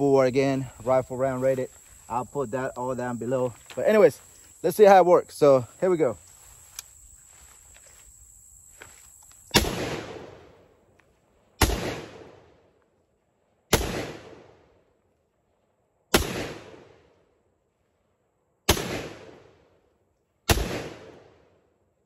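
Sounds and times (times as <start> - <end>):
single gunshots: 9.5 - 10.6, 11.6 - 12.6, 13.7 - 14.7, 16.1 - 17.1, 18.7 - 19.6, 20.5 - 21.5.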